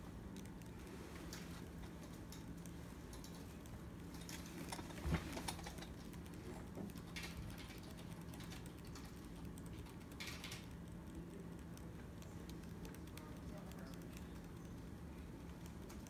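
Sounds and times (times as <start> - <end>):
steady low hum: 0.0 - 16.0
light handling clicks and rustling: 1.1 - 9.2.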